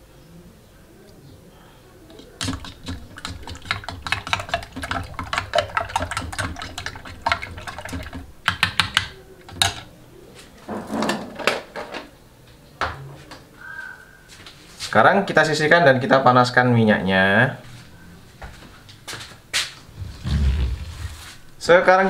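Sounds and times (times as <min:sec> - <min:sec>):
metal spoon beating eggs in bowl: 0:02.1 - 0:09.9.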